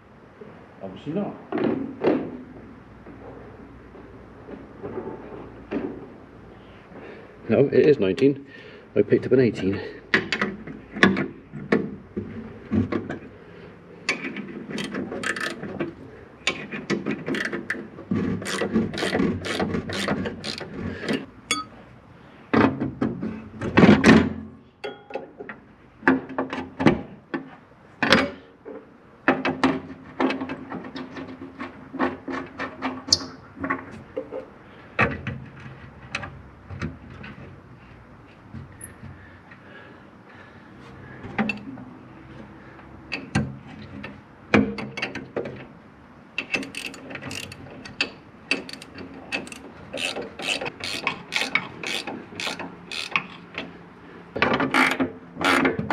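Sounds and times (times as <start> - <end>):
spanner clicking on metal: 14.1 - 15.7, 17.3 - 17.8, 18.4 - 21.7, 46.4 - 53.4, 54.7 - 55.8.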